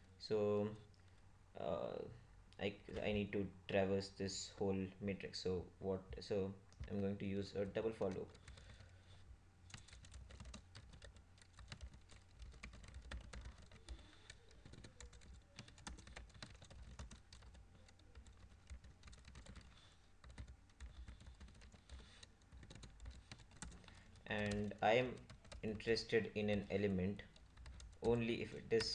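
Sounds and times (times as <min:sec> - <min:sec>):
faint keyboard typing: 0:06.7 - 0:28.9.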